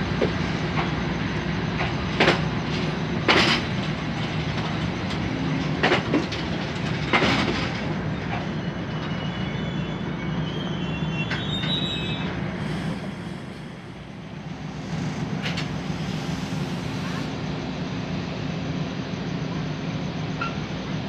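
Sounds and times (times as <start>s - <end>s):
train rumbling on rails: 0.0s - 21.0s
thin wheel squeal: 8.6s - 12.3s.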